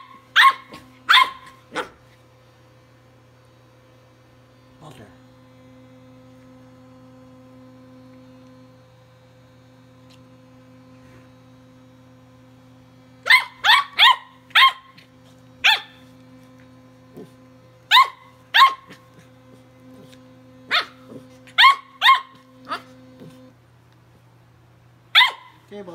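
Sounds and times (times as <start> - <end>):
puppy barking: 0.0 - 2.0, 13.2 - 15.0, 15.6 - 16.0, 17.9 - 19.0, 20.7 - 23.0, 25.1 - 25.6
electric toothbrush buzzing: 0.0 - 2.2, 4.0 - 23.5.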